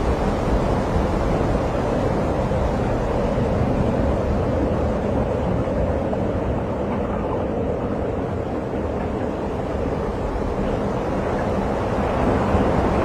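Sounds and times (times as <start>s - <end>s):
wind blowing across microphone: 0.0s - 13.0s.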